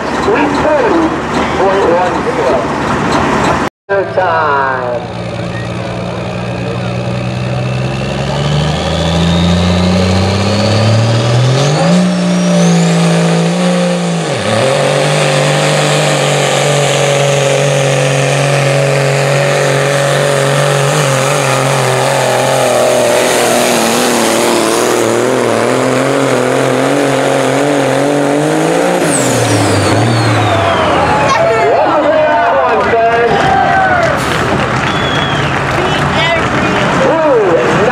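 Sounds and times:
diesel truck engine under load: 0:00.0 - 0:37.9.

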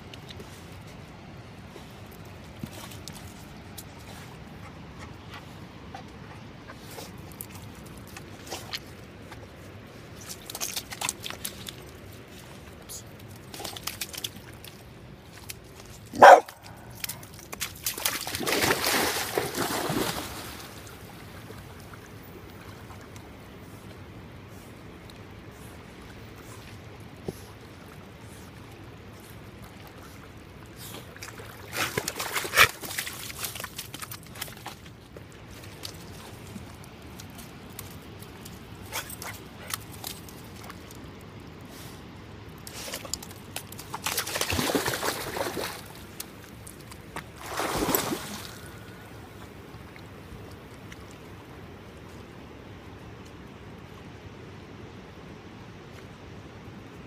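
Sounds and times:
dog splashing and swimming: 0:00.1 - 0:41.2, 0:42.6 - 0:51.6
dog barking: 0:16.2 - 0:16.6.

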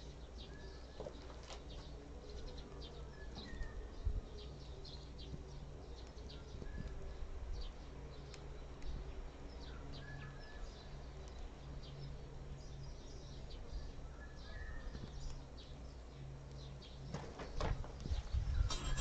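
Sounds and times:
small birds chirping: 0:00.0 - 0:19.0
whistled bird notes: 0:02.3 - 0:04.5, 0:14.0 - 0:15.0.

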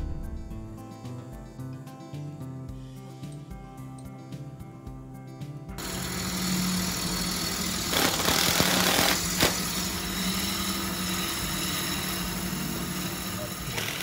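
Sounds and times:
gouge cutting spinning wood: 0:05.8 - 0:14.0
wood lathe motor hum: 0:05.8 - 0:14.0.

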